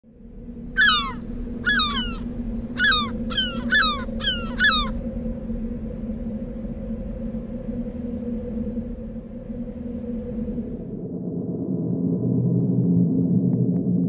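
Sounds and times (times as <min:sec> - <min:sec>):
steady low hum: 0:00.0 - 0:14.0
gull calling: 0:00.7 - 0:05.0.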